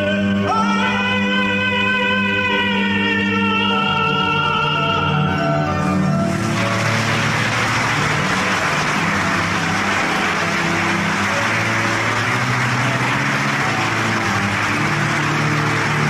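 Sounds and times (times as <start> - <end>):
singing: 0.0 - 5.7
audience applauding loudly: 6.1 - 16.0.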